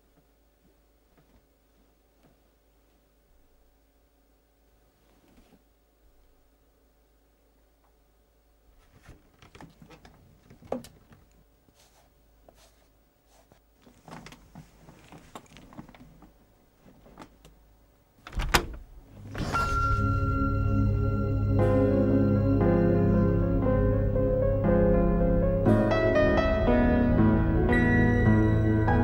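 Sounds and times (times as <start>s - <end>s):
window clicks and creaks: 18.2s - 19.6s.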